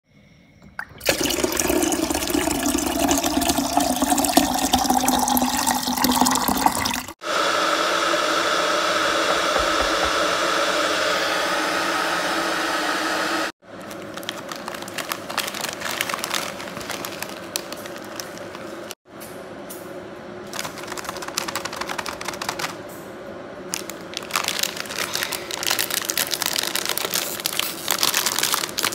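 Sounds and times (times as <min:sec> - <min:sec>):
water pouring into kettle: 0:00.6 - 0:07.2
plastic packets crinkling: 0:13.7 - 0:19.0, 0:20.4 - 0:22.8, 0:23.7 - 0:28.9.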